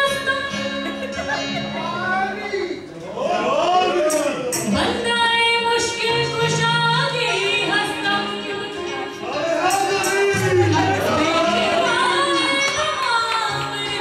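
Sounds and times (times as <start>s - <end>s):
woman singing into a microphone: 0.0s - 1.6s, 4.7s - 9.4s, 10.4s - 14.0s
low instrumental accompaniment: 6.0s - 14.0s.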